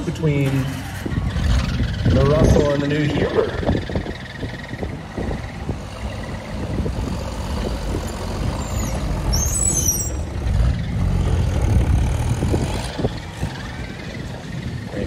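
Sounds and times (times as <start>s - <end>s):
tractor engine rumble: 0.0s - 15.0s
high squeal: 8.6s - 10.3s.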